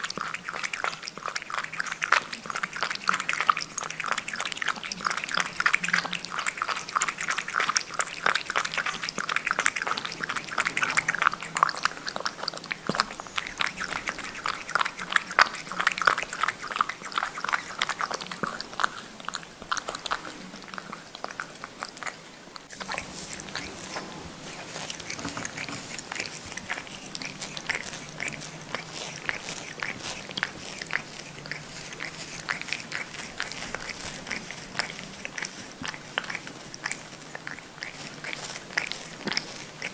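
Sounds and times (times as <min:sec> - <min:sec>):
cat lapping from a bowl: 0:00.0 - 0:39.9
cat licking its paw: 0:00.0 - 0:39.9.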